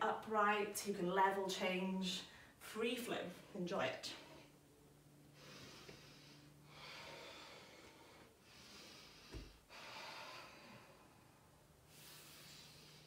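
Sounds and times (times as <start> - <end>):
person breathing faintly: 5.3 - 13.0.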